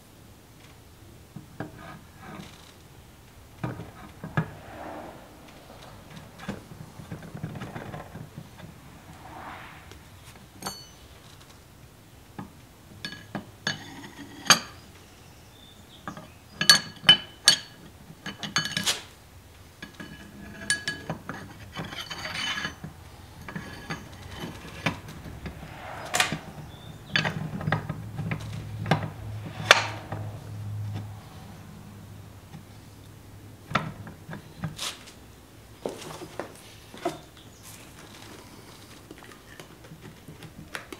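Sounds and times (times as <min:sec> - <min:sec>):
metal scraping rubs: 0:01.6 - 0:11.5, 0:20.0 - 0:32.3.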